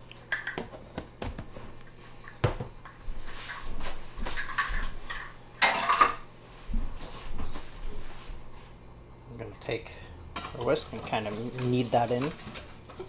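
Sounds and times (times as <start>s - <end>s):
utensils clattering: 4.4s - 6.2s, 10.4s - 13.0s.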